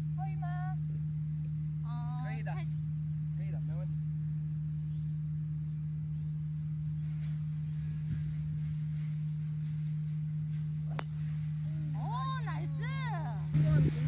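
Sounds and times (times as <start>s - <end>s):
steady low hum: 0.0s - 14.0s
golf club striking ball: 10.9s - 11.5s.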